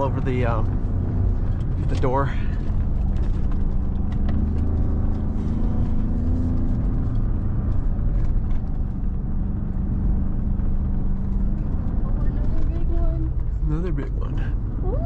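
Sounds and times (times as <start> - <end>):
knocks and rattles over bumps: 0.0 - 5.3.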